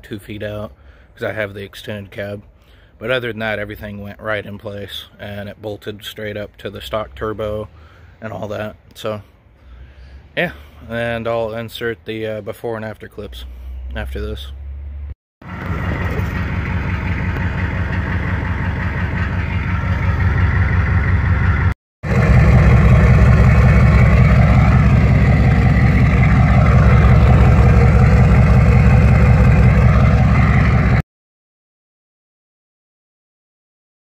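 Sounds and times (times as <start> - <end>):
diesel engine idling: 15.4 - 31.0.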